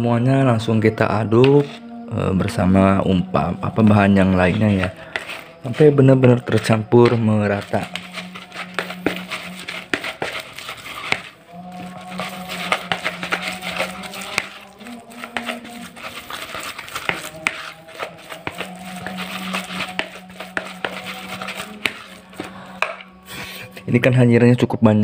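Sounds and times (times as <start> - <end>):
hand squeezing crumbly mix: 3.8 - 23.1.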